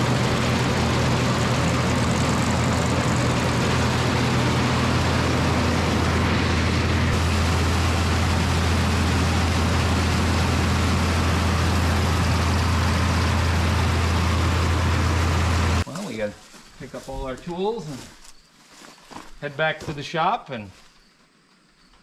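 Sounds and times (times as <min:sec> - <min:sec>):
tractor engine running: 0:00.0 - 0:15.9.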